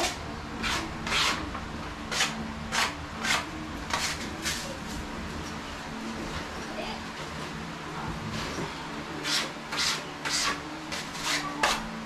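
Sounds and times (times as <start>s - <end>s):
putty knife scraping wall: 0.0s - 1.4s, 2.1s - 4.6s, 9.2s - 11.8s.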